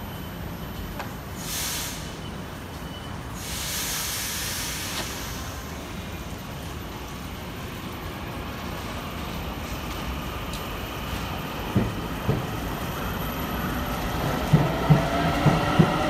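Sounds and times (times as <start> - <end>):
air release hiss: 1.4 - 2.2, 3.4 - 5.8
train running hum: 1.9 - 16.0.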